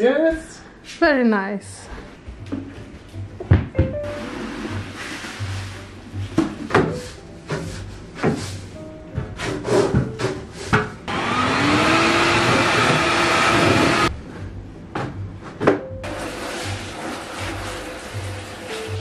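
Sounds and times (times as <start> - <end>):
stick vacuum cleaner running: 11.1 - 14.1, 16.1 - 18.8.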